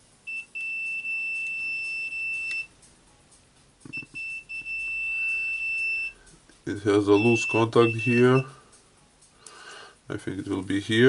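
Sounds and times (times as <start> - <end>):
multimeter continuity beeper tone: 0.2 - 2.7, 3.9 - 8.6.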